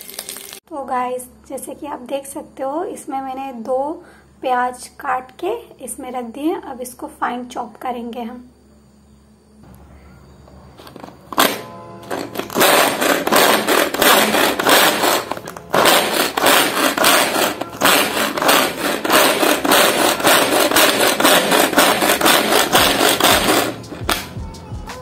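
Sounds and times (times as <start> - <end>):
vegetable chopper whirring rattle: 11.0 - 24.2.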